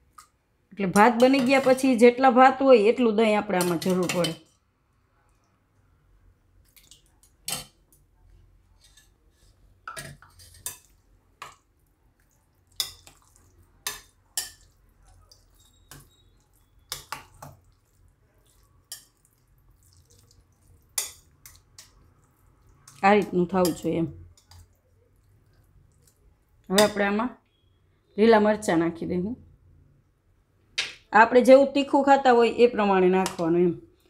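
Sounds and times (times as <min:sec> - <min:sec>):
soft mushy stirring: 0:03.6 - 0:27.7
spoon clinking against glass bowl: 0:12.8 - 0:17.7.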